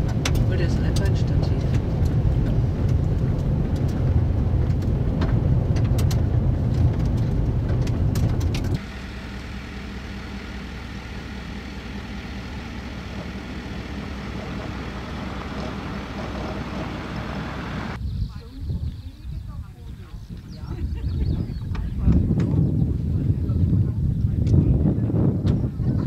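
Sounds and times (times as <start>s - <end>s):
stones ticking: 0.0s - 8.8s
truck engine droning: 0.0s - 18.0s
vehicle rumbling on gravel road: 0.0s - 18.6s.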